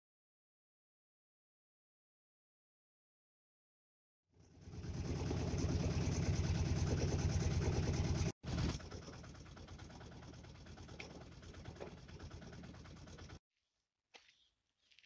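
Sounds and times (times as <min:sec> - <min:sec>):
engine running with low pulsing: 0:04.3 - 0:13.4.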